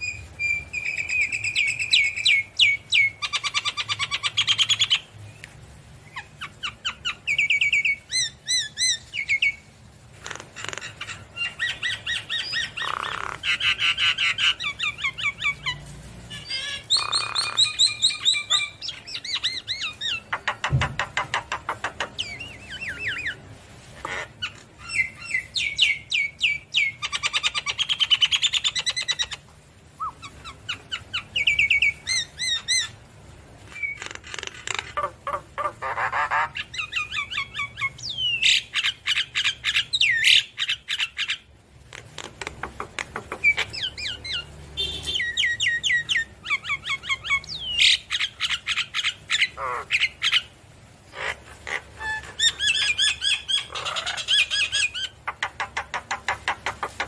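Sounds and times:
myna singing whistles and squawks: 0:00.0 - 0:05.0, 0:16.4 - 0:23.4, 0:30.0 - 0:33.0, 0:33.7 - 0:41.4.

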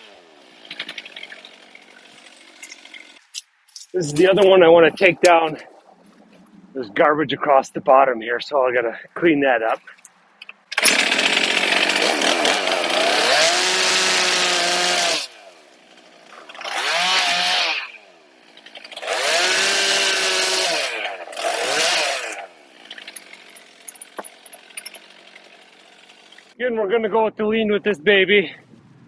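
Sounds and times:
chainsaw revving and cutting: 0:00.0 - 0:03.2, 0:10.7 - 0:26.6.

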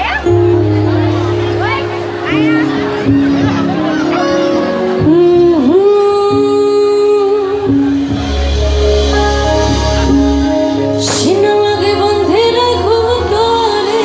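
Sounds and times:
bass guitar: 0:00.0 - 0:14.0
drums: 0:00.0 - 0:14.0
held band chords: 0:00.0 - 0:14.0
woman singing into a microphone: 0:04.9 - 0:08.1, 0:11.0 - 0:14.0.

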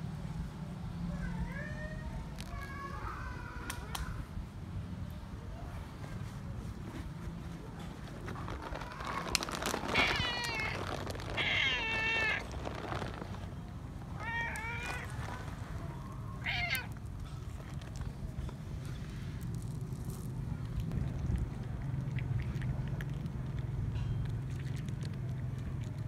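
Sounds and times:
cat meowing: 0:08.8 - 0:13.1, 0:14.1 - 0:15.6, 0:16.3 - 0:17.0.

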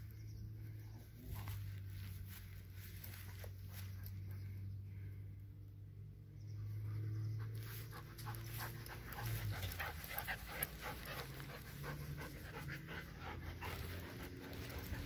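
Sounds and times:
dog panting: 0:07.4 - 0:15.0.

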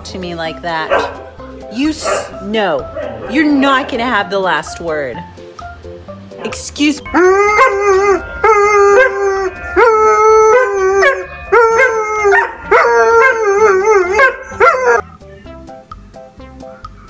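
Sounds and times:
dog howling: 0:07.1 - 0:15.0.

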